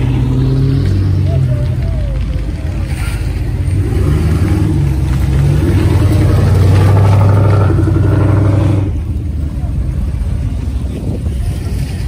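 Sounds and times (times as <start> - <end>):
pickup truck engine accelerating: 0.0 - 12.0.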